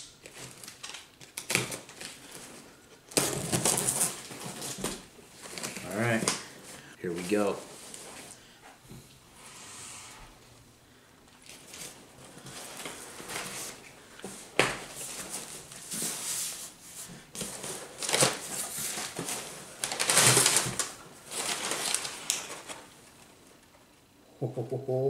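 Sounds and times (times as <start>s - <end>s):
packing paper rustling: 0.0s - 8.4s, 11.4s - 23.7s
cardboard box tearing: 17.8s - 22.1s.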